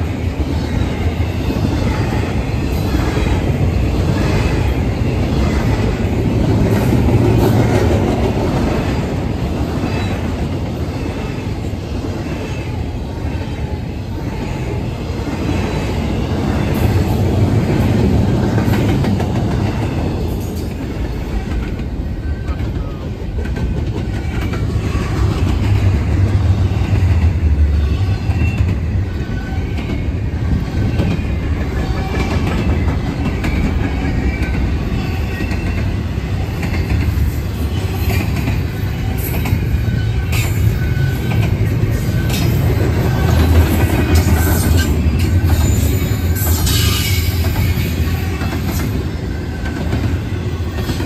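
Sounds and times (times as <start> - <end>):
freight train wheels rumbling: 0.0 - 51.0
faint high wheel squeal: 37.6 - 43.5, 44.1 - 48.9.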